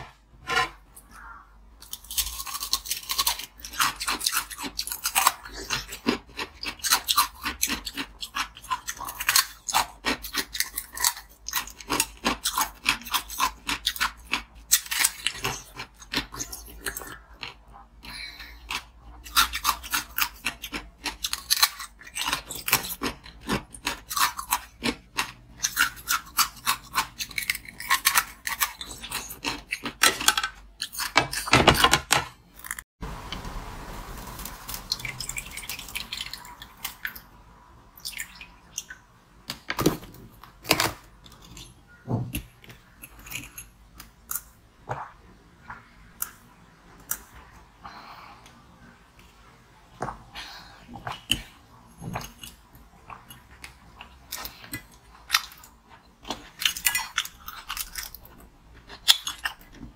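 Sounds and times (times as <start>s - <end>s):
chewing crunching ice: 1.8s - 17.8s, 18.6s - 31.4s.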